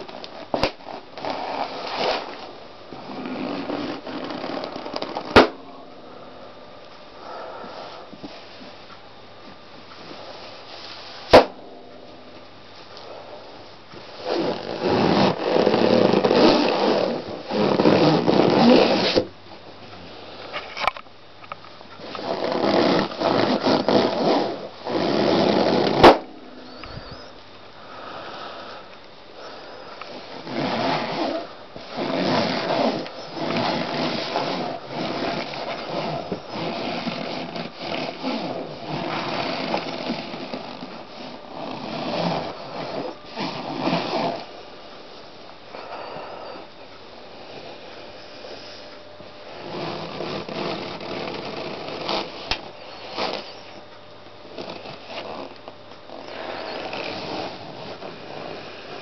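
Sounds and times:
balloons squeaking and creaking: 0:00.0 - 0:05.6, 0:14.1 - 0:19.3, 0:22.0 - 0:27.4, 0:29.4 - 0:44.6, 0:49.6 - 0:53.8, 0:54.4 - 0:59.0
balloon bursting with a pop: 0:05.3 - 0:05.6, 0:11.3 - 0:11.6, 0:25.8 - 0:26.3.

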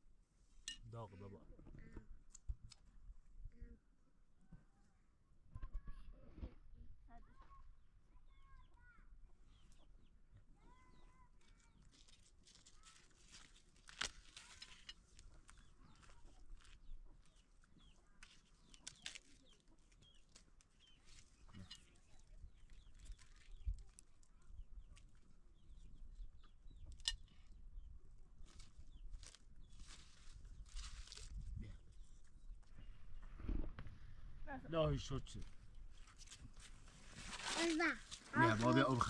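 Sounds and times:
faint chickens clucking: 0:15.0 - 0:27.0.

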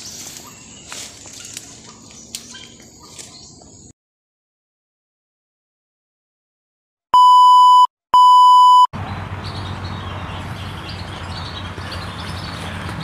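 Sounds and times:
long electronic beeps: 0:07.2 - 0:08.9.

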